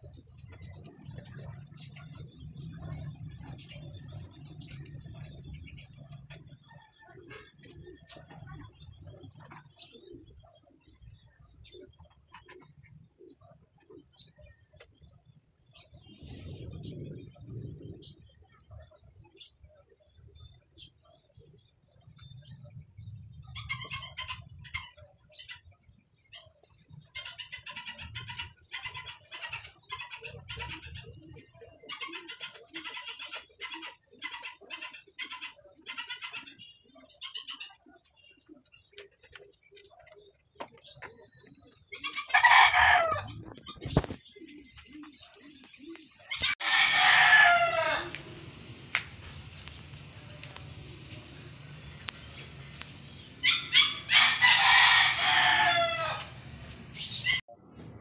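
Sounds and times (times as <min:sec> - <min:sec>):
rooster crowing: 0:42.3 - 0:43.3, 0:46.6 - 0:48.3, 0:53.8 - 0:56.4.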